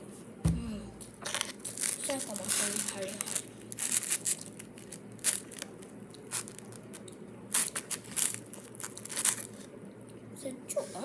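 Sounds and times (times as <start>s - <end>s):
plastic wrapper crinkling: 1.2s - 9.7s.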